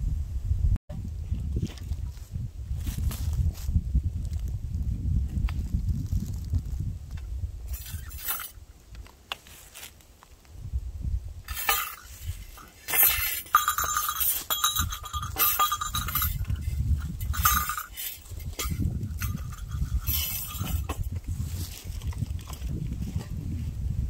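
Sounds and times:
metal rings jingling on staff: 7.7 - 8.6, 11.5 - 21.2.

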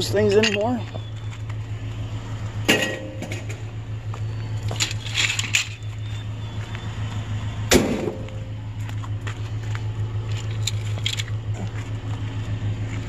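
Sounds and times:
vehicle engine idling: 0.0 - 13.0
sharp metallic knocks: 2.6 - 3.6, 7.7 - 8.5
clatter: 2.7 - 3.7, 4.6 - 6.0, 7.7 - 13.0.

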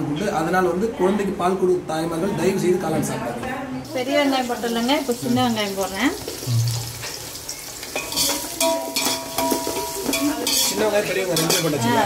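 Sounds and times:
onions sizzling in oil: 3.8 - 12.0
metal ladle scraping pot: 6.2 - 11.8.

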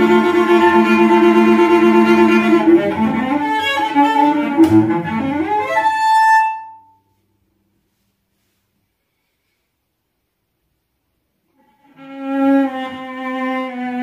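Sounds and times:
bowed cello: 0.0 - 7.0, 11.5 - 14.0.

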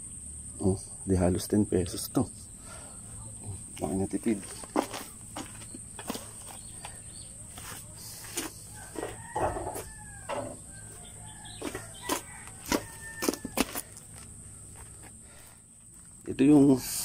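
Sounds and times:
rooster crowing: 8.4 - 14.1.

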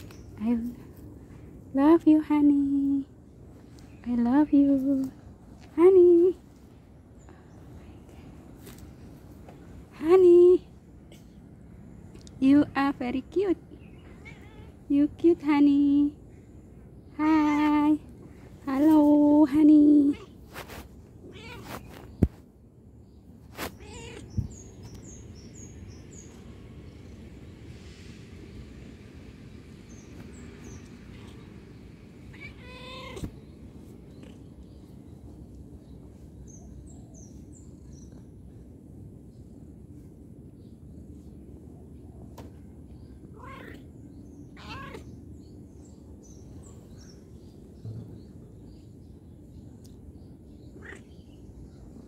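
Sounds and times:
cat meowing: 14.1 - 14.8, 23.8 - 24.3, 32.3 - 33.3, 43.4 - 43.8, 44.6 - 45.1, 50.8 - 51.2.

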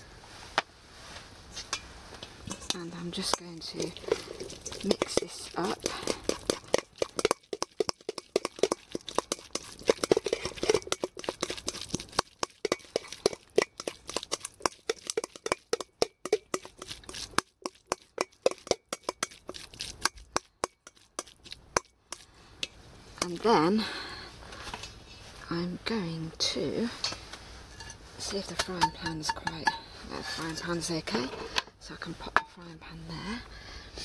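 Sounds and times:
spoon clinking and scraping bowl: 2.4 - 22.2, 27.7 - 31.5.

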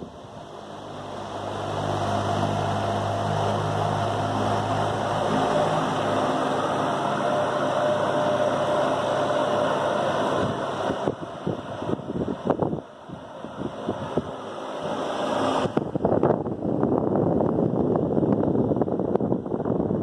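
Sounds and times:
electric fan running: 0.0 - 20.0
wind buffeting microphone: 10.1 - 20.0.

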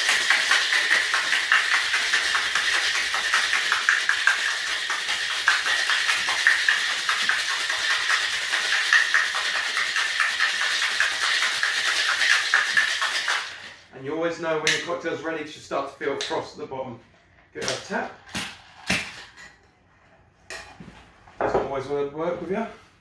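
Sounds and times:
ice rattling in metal shaker: 0.0 - 13.8.

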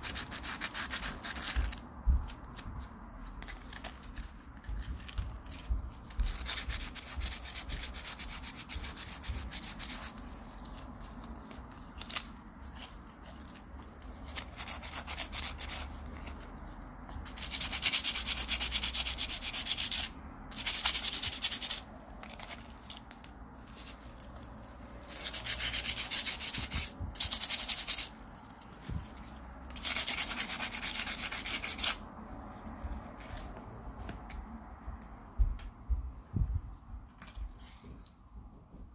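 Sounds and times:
metal scratching on sandpaper: 17.4 - 22.7, 25.0 - 28.2, 29.8 - 32.0.

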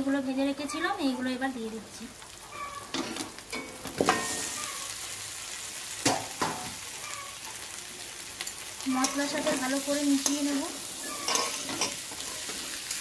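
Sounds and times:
vegetables sizzling in hot oil: 0.0 - 13.0
metal spatula scraping pan: 8.9 - 13.0.

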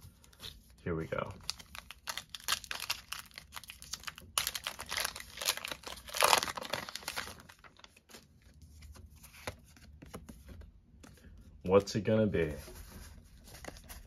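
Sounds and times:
foil wrapper crinkling and tearing: 1.4 - 8.0.

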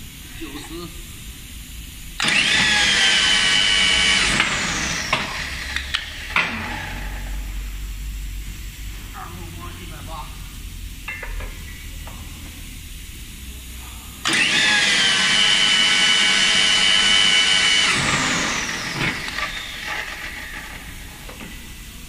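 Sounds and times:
rebar bending machine motor whine: 2.2 - 8.2, 14.2 - 22.0.

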